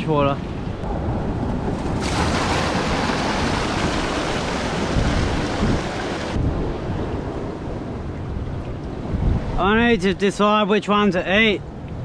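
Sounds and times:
wave rushing over rocks: 1.7s - 7.0s.

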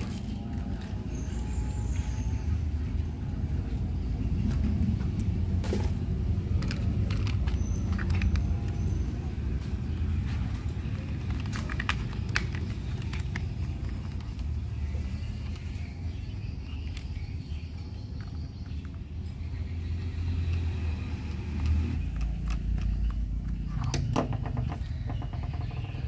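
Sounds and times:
steady low rumble: 0.0s - 20.2s.

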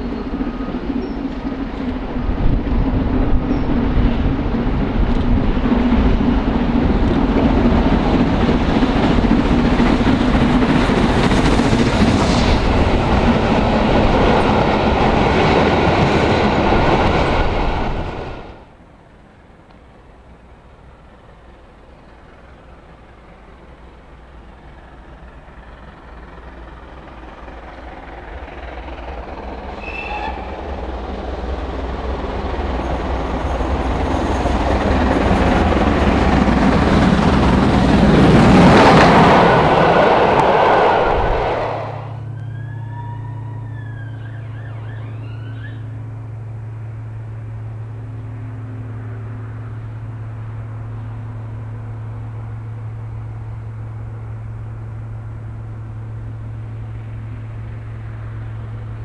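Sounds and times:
steam locomotive passing: 0.0s - 59.0s
steady low hum: 34.8s - 59.0s.

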